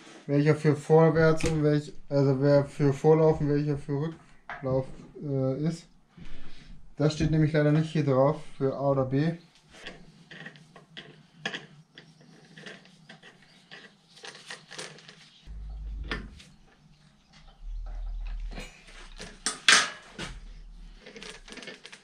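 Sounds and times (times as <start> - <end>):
low rumble: 15.5 - 19.4, 20.2 - 21.4
sharp metallic clank: 18.5 - 20.3.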